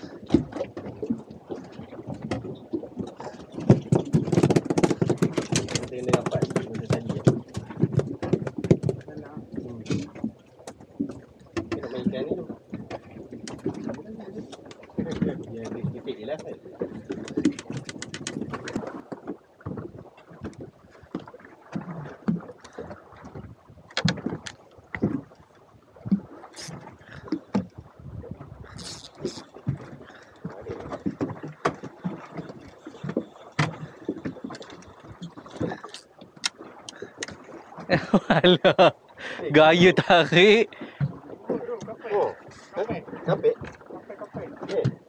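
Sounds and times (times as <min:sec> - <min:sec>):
water: 0:00.0 - 0:45.0
wind: 0:00.0 - 0:45.0
knocks on deck and hull: 0:03.6 - 0:10.3.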